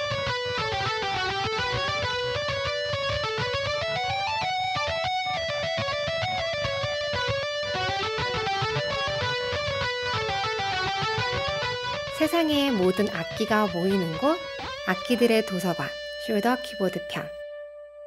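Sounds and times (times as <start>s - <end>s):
keytar melodic run: 10.5s - 17.4s.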